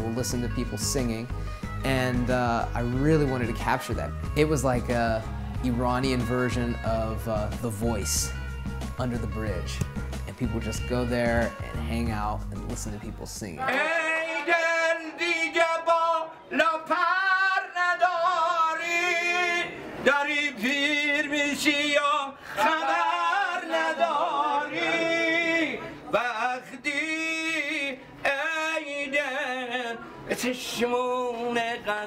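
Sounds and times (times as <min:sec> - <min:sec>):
man singing unaccompanied: 0:00.0 - 0:32.0
singer breathing: 0:01.3 - 0:01.8, 0:05.2 - 0:05.6, 0:08.3 - 0:08.8, 0:22.3 - 0:22.6.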